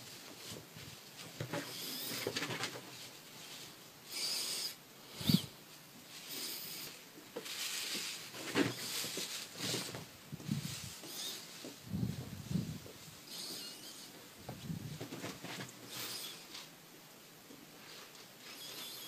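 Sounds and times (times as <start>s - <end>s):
rustling and scrabbling on sheet: 0.0s - 3.9s, 5.2s - 16.8s
short hissy bursts: 4.0s - 8.2s, 10.5s - 11.7s, 15.8s - 16.7s.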